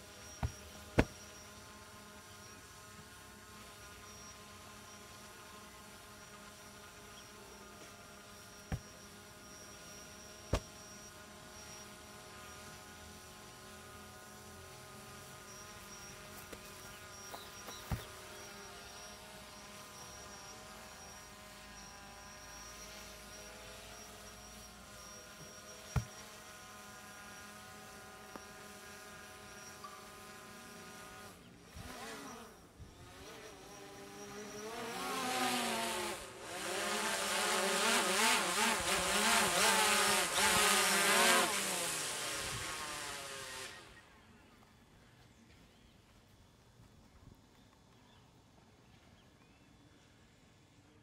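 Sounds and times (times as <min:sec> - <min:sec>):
steady buzzing hum: 0:00.0 - 0:51.0
sharp thuds: 0:00.4 - 0:01.2, 0:10.5 - 0:10.7, 0:26.0 - 0:26.2.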